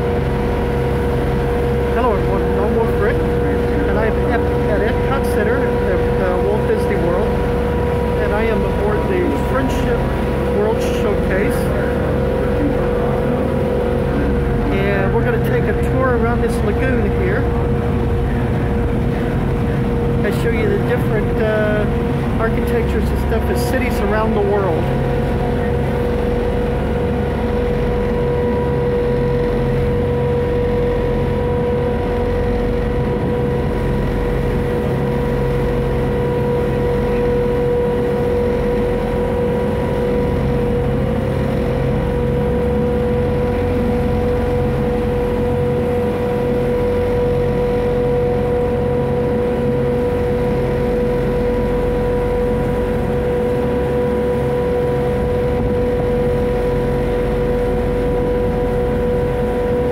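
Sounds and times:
boat engine droning: 0.0 - 59.9.

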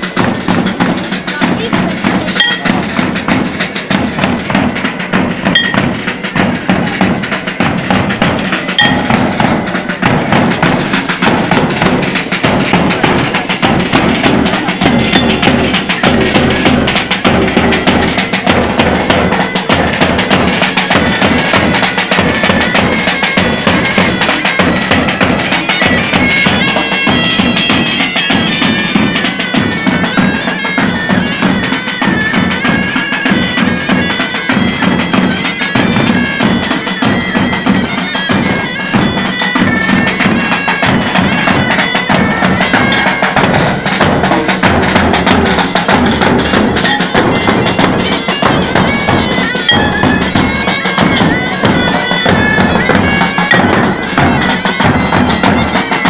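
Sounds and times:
bagpipes playing: 0.0 - 56.0
drum beating: 0.0 - 56.0.

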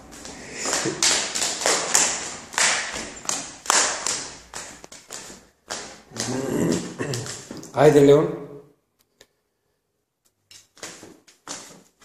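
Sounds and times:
footsteps on wooden stairs: 0.0 - 7.8, 10.7 - 12.0.

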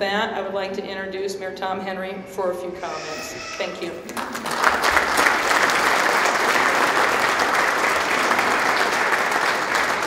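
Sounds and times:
audience applauding: 4.1 - 10.0.

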